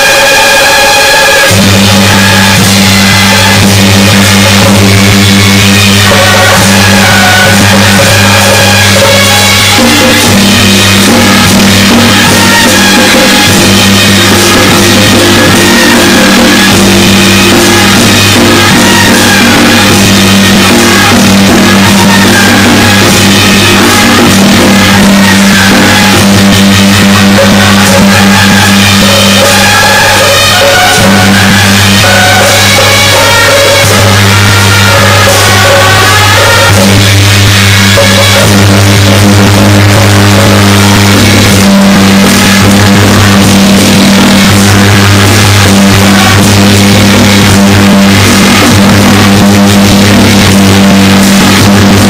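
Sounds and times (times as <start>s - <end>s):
loud music with drums: 0.0s - 52.0s.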